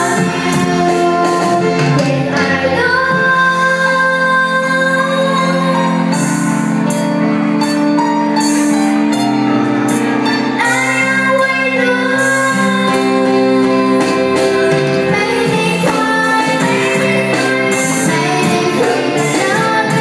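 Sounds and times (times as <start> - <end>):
girl singing into a microphone: 0.0 - 6.2, 10.6 - 20.0
live band with electric guitar: 0.0 - 20.0.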